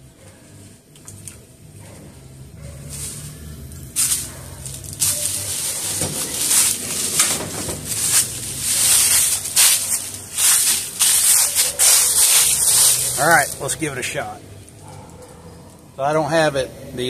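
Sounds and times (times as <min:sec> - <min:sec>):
footsteps crunching through dry leaves: 0:02.7 - 0:14.9.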